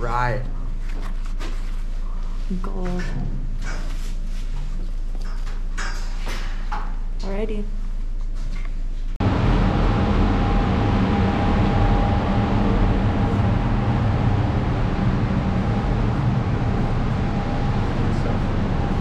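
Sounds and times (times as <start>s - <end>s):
faint constant whine: 0.0s - 19.0s
loud machinery drone: 9.2s - 19.0s.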